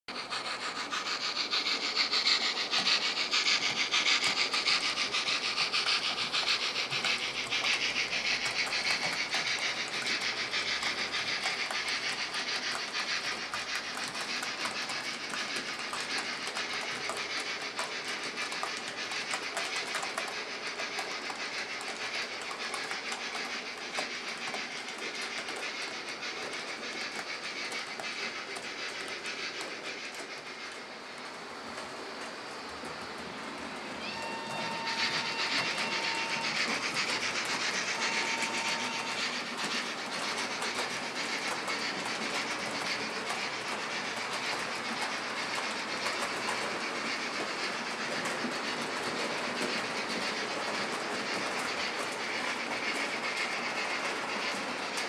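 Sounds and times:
model train wheels clicking on rails: 0:00.1 - 0:55.0.

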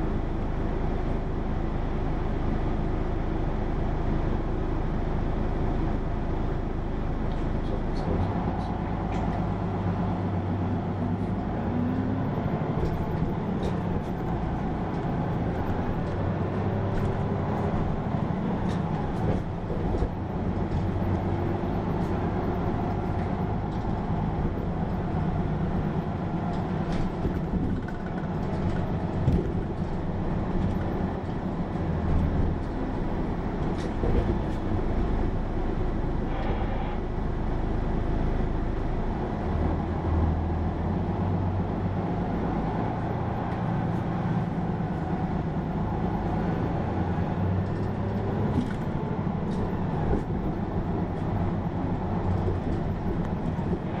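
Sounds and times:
bus engine drone: 0:00.0 - 0:54.0
road noise: 0:00.0 - 0:54.0
body rattles and clicks: 0:12.3 - 0:34.8, 0:47.5 - 0:54.0.

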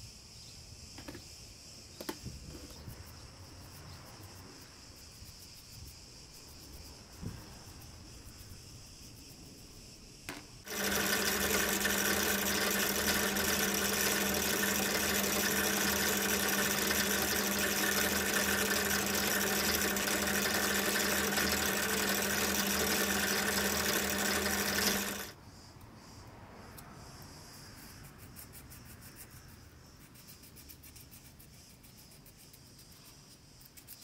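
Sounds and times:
drill press motor humming: 0:10.7 - 0:25.3.

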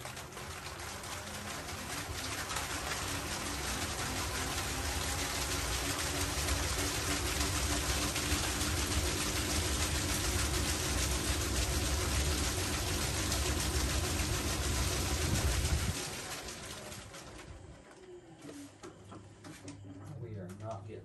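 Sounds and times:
spinner whirring with air rush: 0:00.8 - 0:17.0.

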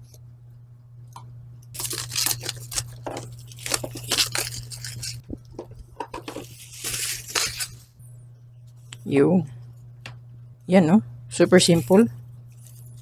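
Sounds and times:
shrink wrap crinkling and tearing: 0:01.8 - 0:05.4, 0:06.4 - 0:07.9, 0:11.6 - 0:13.0.

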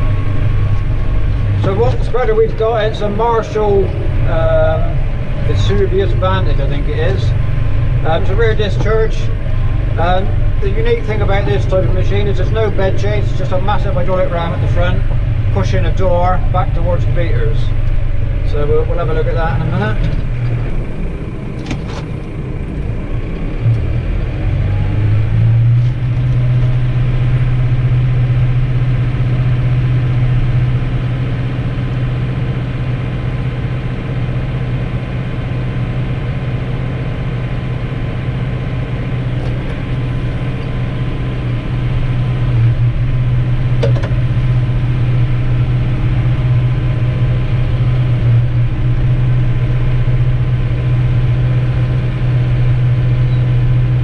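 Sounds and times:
tractor diesel engine revving: 0:00.0 - 0:54.0.

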